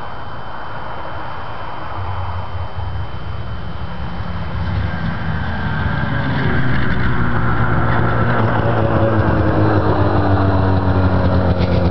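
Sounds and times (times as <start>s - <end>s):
snowmobile engine running: 2.6s - 11.9s.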